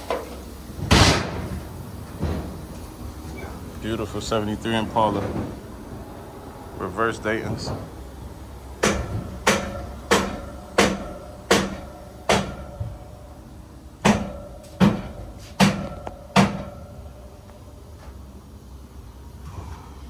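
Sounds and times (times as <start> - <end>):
sharp ringing knocks: 8.8 - 13.0, 14.0 - 17.0.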